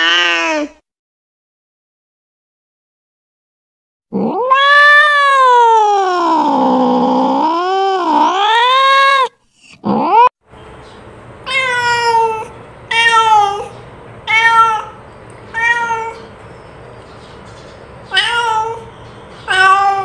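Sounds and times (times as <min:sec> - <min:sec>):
cat meowing: 0:00.0 - 0:00.8, 0:04.2 - 0:09.3, 0:11.5 - 0:16.3, 0:18.1 - 0:20.0.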